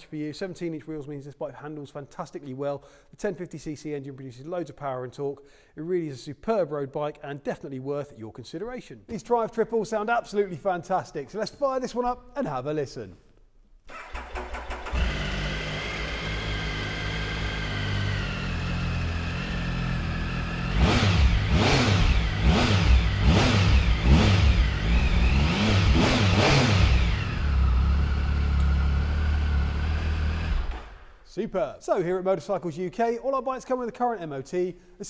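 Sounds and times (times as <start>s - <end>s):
motorcycle engine revving and idling: 14.1s - 31.0s.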